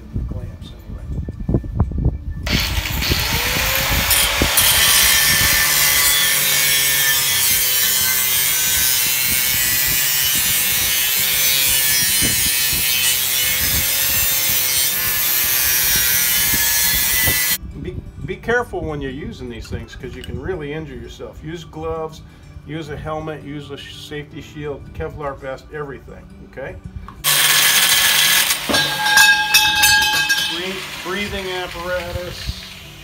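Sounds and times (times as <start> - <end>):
angle grinder cutting metal: 2.5 - 17.6, 27.2 - 33.0.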